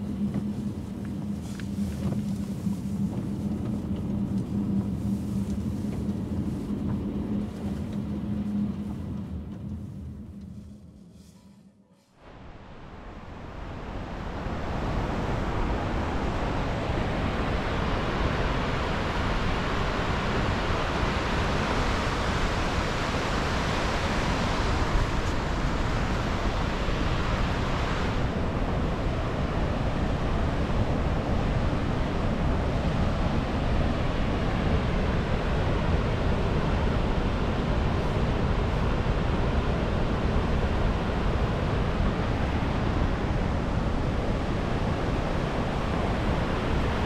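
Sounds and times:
road and tyre rumble: 0:00.0 - 0:11.4, 0:12.2 - 0:47.0
wind rush: 0:00.0 - 0:47.0.

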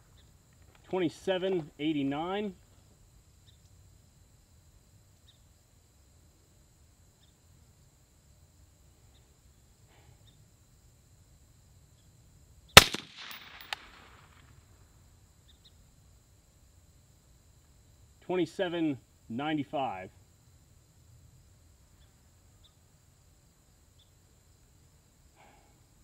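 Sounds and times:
suppressed rifle shot: 0:12.8 - 0:14.4.

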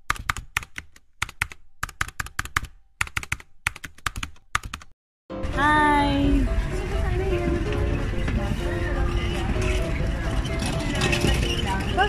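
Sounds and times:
outdoor background noise: 0:06.1 - 0:12.0.

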